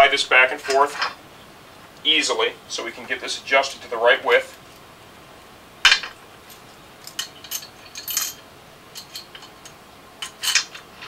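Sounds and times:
metal clinks and clicks: 0:06.0 - 0:11.0.

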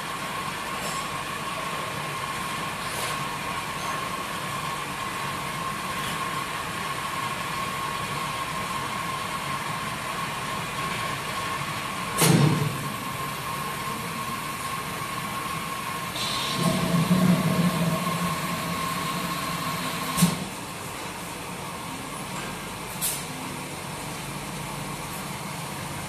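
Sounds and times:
machine hum with thin whine: 0:00.0 - 0:26.0
loud burst of noise: 0:16.2 - 0:20.4.

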